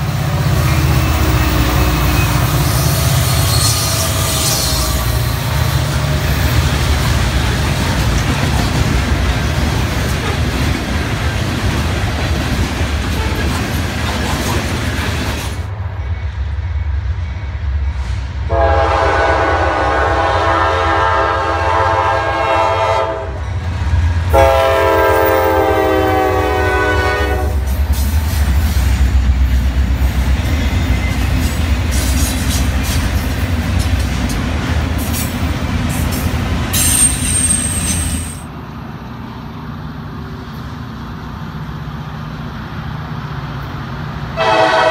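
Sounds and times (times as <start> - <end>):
low train rumble: 0.0 - 44.9
train horn blasts: 0.6 - 5.2, 18.4 - 23.4, 24.3 - 27.7, 44.4 - 44.9
train wheels clattering: 0.7 - 15.7, 27.6 - 38.5.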